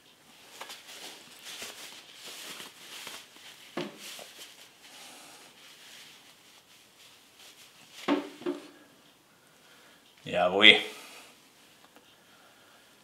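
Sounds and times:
fabric gloves rustling: 0.0 - 8.9
soft knocks: 8.0 - 8.8.

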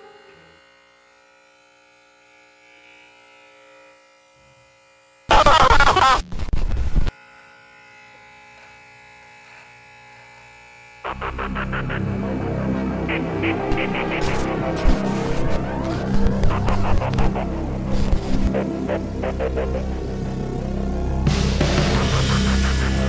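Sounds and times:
music: 0.0 - 0.8, 11.1 - 23.0
electric hair clipper buzzing: 0.0 - 23.0.

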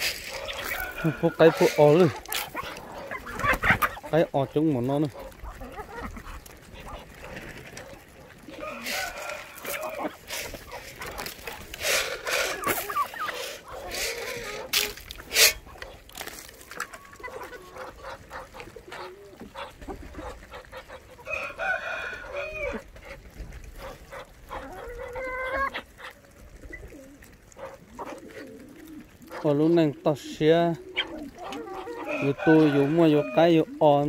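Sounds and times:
chickens clucking: 0.0 - 34.0
rooster crowing: 0.1 - 2.0, 8.6 - 10.1, 21.3 - 22.8, 32.1 - 33.6.

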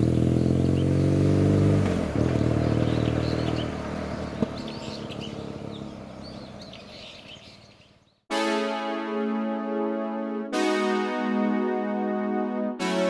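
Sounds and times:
motorcycle engine accelerating: 0.0 - 7.4
birds chirping: 0.3 - 8.3.

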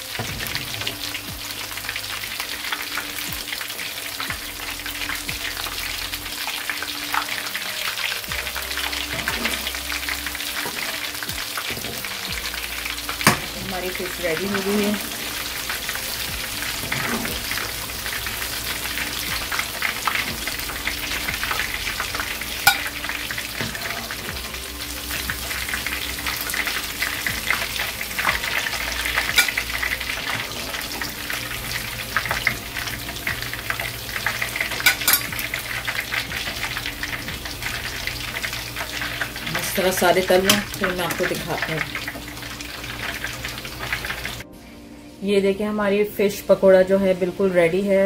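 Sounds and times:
deep-frying sizzle and crackling: 0.0 - 48.0
metal spoon knocking pan: 13.2 - 13.6, 22.6 - 22.9, 34.8 - 35.3.

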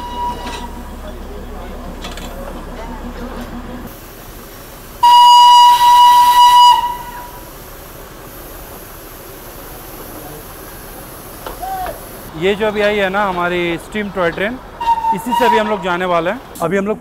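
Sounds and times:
steam locomotive whistle: 0.0 - 0.8, 5.0 - 7.5, 14.8 - 15.9
passing steam engine: 0.0 - 17.0.

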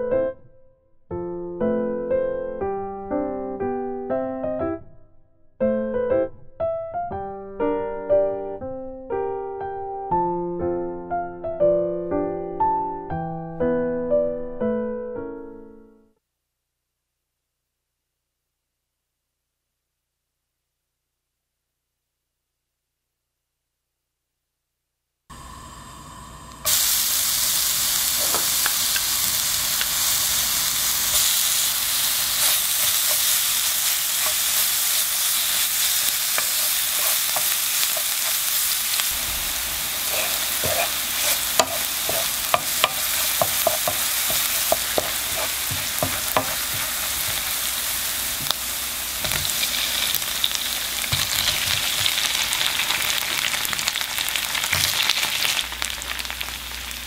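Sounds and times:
garlic sizzling in oil: 25.3 - 57.0
spatula scraping pan: 31.1 - 52.4.

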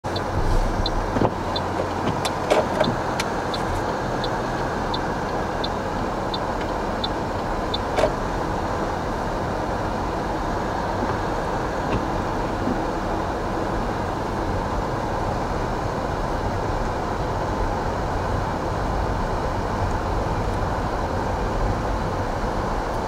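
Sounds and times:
car engine and road noise: 0.0 - 23.0
turn signal ticking: 0.1 - 8.6.

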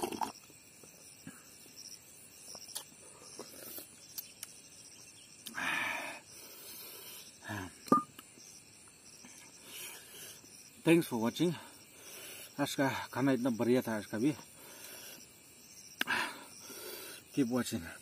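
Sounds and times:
man slurping from a plate: 0.0 - 0.4
insects chirring: 0.0 - 18.0.

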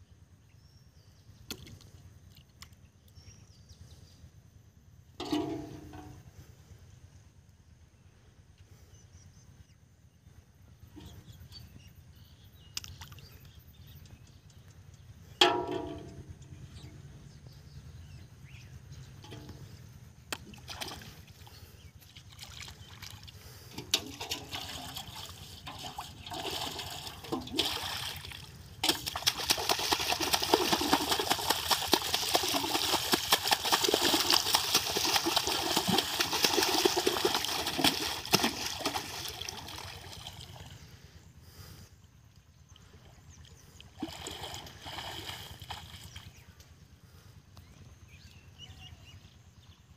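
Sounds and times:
water splashing and sloshing: 5.2 - 6.2, 15.4 - 16.4, 19.2 - 40.8, 42.7 - 46.4.

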